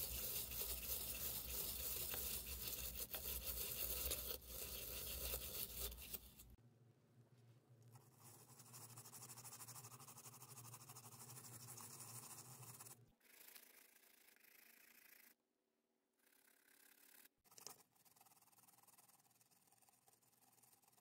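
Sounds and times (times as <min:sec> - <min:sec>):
swab scrubbing circuit board: 0:00.0 - 0:06.6.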